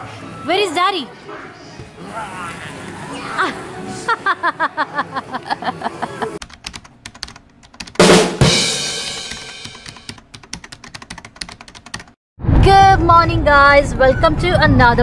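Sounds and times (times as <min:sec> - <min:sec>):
keyboard typing clicks: 0:06.4 - 0:08.0, 0:09.3 - 0:12.1
music with quick repeated notes: 0:07.9 - 0:10.1.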